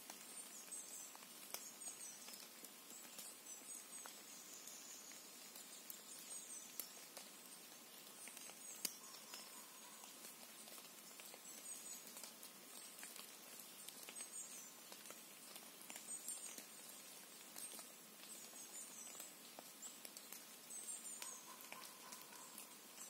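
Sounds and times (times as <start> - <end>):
light ticks: 0.0 - 3.3, 17.4 - 22.7
soft hiss: 0.0 - 23.0
faint high-pitched chirps: 0.1 - 23.0.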